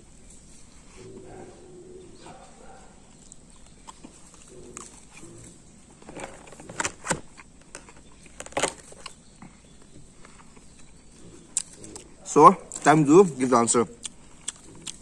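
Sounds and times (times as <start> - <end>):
person chewing: 2.2 - 12.9, 13.9 - 15.0.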